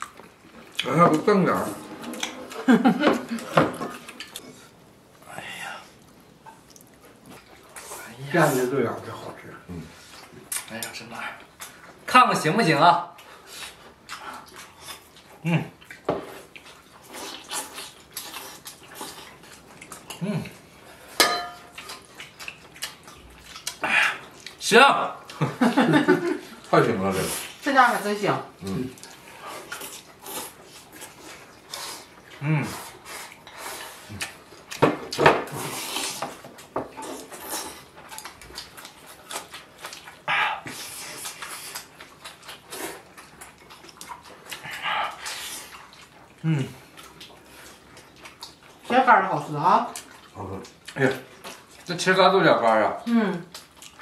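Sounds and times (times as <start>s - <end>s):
chewing food: 0.0s - 4.8s, 6.0s - 12.2s, 13.0s - 54.0s
ringing clink: 21.2s - 21.6s.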